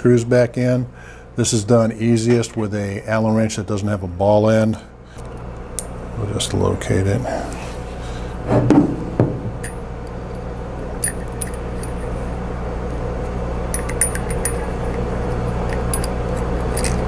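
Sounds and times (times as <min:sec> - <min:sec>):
steady low hum: 0:00.0 - 0:17.0
screw and wrench clinking on metal: 0:13.7 - 0:14.8, 0:15.6 - 0:17.0.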